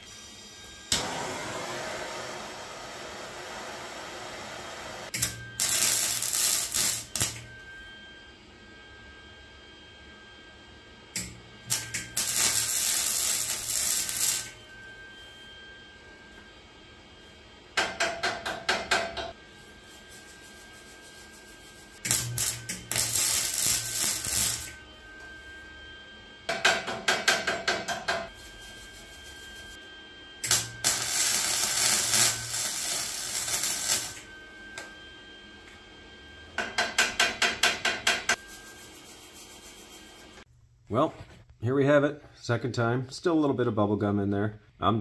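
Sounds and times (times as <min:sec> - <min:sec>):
welder arc crackling: 0:05.2 - 0:07.5, 0:11.7 - 0:14.6, 0:21.9 - 0:24.8, 0:30.4 - 0:34.2.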